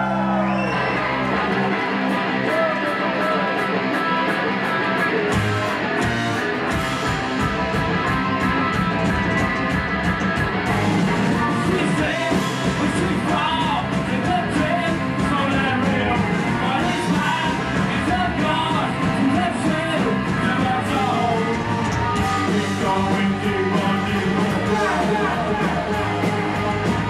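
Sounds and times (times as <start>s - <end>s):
punk rock band playing: 0.0s - 27.0s
lead vocal singing: 11.4s - 27.0s.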